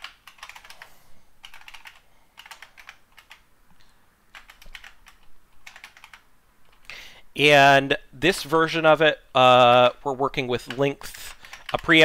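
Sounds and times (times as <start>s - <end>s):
typing on computer keyboard: 0.0s - 3.4s, 4.3s - 6.8s, 10.6s - 12.0s.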